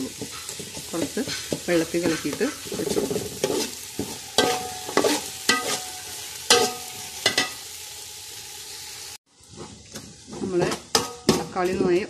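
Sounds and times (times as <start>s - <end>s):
food sizzling in oil: 0.0s - 12.0s
metal spoon scraping a pot: 0.1s - 7.6s.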